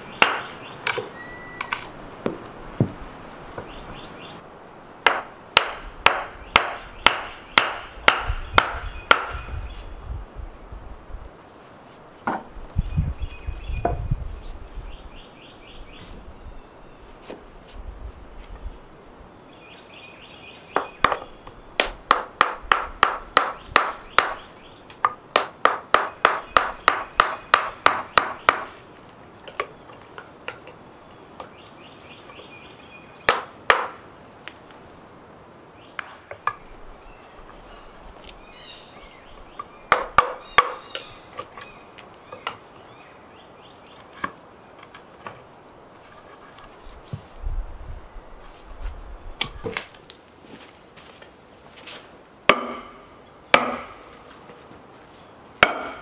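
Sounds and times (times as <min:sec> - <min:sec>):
birds chirping: 0:00.0 - 0:10.2, 0:11.2 - 0:17.5, 0:18.3 - 0:50.1
mallet striking a chisel: 0:05.0 - 0:09.4, 0:52.5 - 0:53.0, 0:53.6 - 0:54.0, 0:55.6 - 0:56.0.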